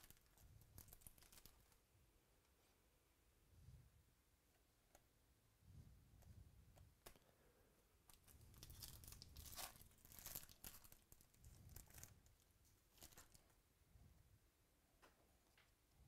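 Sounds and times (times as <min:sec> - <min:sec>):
foil wrapper tearing: 0:00.0 - 0:01.8, 0:08.1 - 0:12.2.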